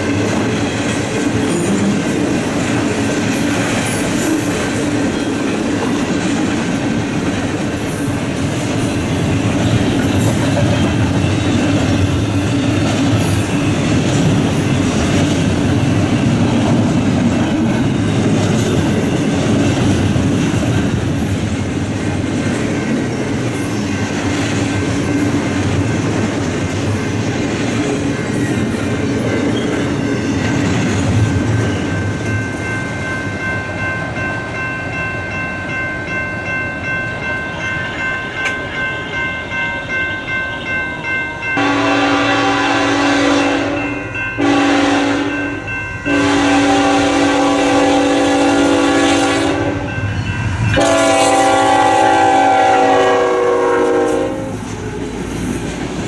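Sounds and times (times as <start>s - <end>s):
locomotive air horn blasts: 41.6s - 45.4s, 46.1s - 49.9s, 50.8s - 54.6s.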